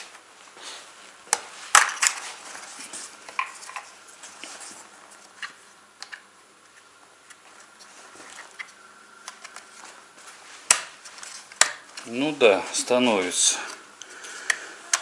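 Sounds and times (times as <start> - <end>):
sharp plastic snap: 10.7 - 10.9.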